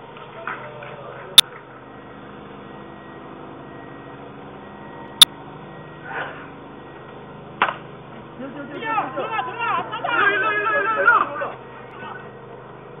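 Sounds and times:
steady low hum: 0.0 - 13.0
baseball impact cracks: 7.6 - 7.9.

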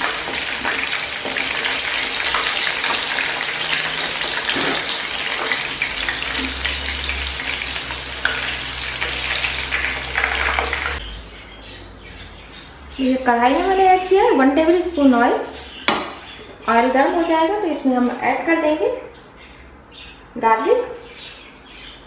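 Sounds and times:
chicken deep-frying in oil: 0.0 - 11.0.

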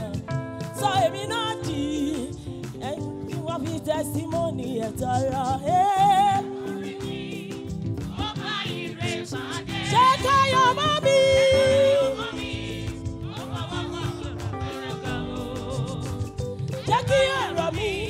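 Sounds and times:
instrumental backing with beat: 0.0 - 18.0
gospel choir singing: 6.3 - 18.0.

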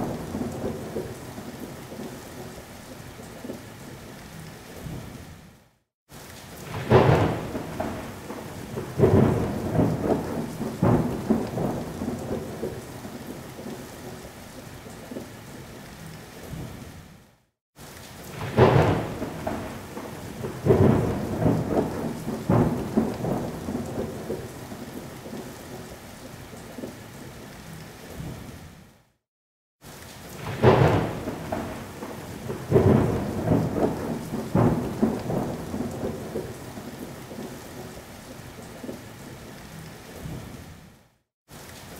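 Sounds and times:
rolling thunder rumbles: 0.0 - 2.1, 6.6 - 13.8, 18.3 - 25.8, 30.4 - 38.0
steady rain: 0.0 - 29.2, 29.8 - 41.9
sharp thunderclap: 6.6 - 12.8, 18.3 - 24.5, 30.4 - 36.6.

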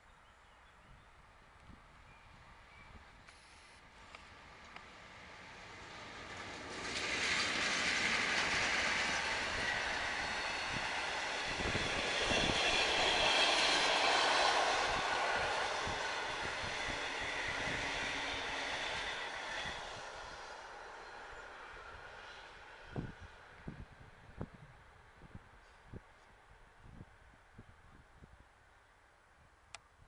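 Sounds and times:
train passing at speed: 3.8 - 25.6.

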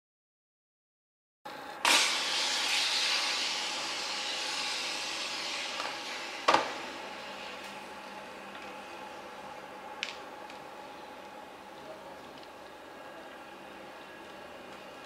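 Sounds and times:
loud hiss: 1.8 - 8.3.

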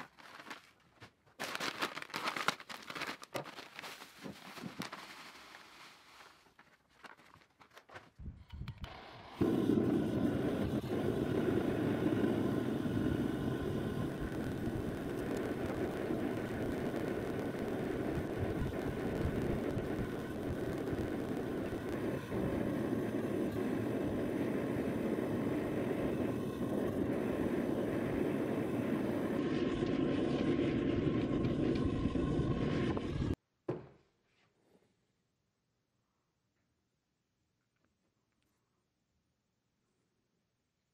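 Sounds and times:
gas forge burner rushing: 8.7 - 33.4.

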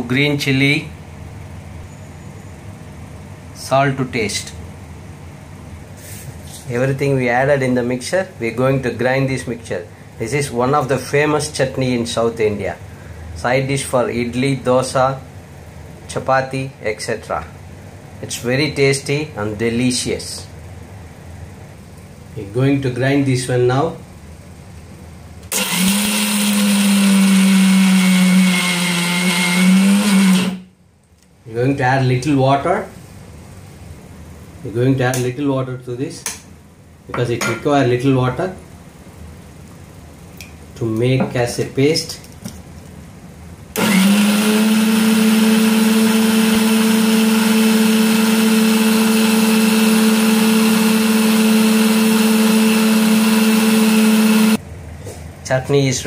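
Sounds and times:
mixer grinder running: 25.5 - 30.6, 43.8 - 54.6.

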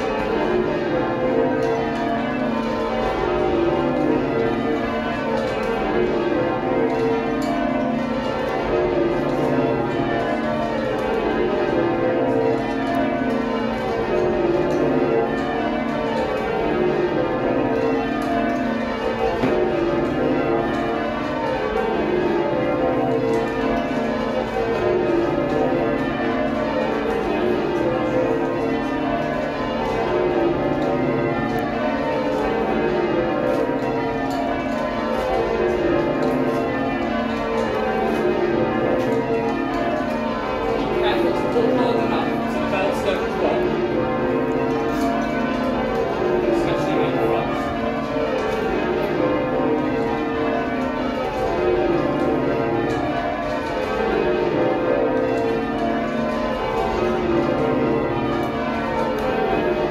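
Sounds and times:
church bells ringing in rows: 0.0 - 59.9.

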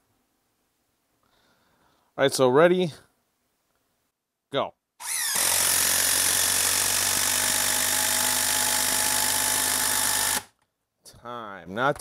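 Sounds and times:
impact driver hammering screw: 5.0 - 10.5.

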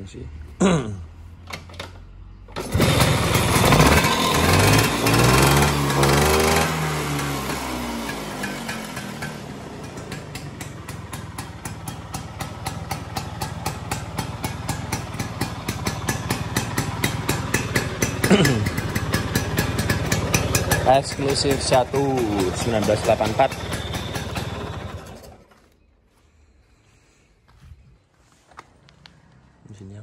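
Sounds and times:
scooter engine idling: 2.5 - 25.8.

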